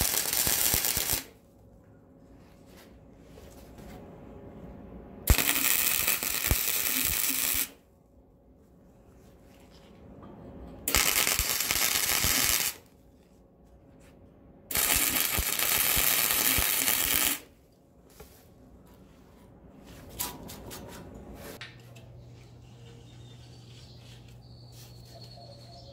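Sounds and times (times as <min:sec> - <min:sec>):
welder's arc crackling: 0:00.0 - 0:01.4, 0:05.3 - 0:07.8, 0:10.9 - 0:12.9, 0:14.7 - 0:17.5.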